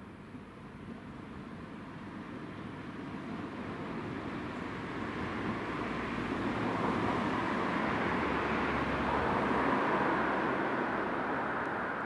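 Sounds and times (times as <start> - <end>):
car passing: 5.8 - 12.0.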